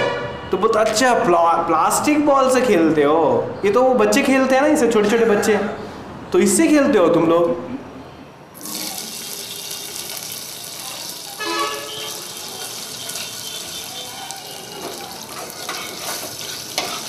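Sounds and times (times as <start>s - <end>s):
vegetables sizzling in a pot: 8.6s - 17.0s.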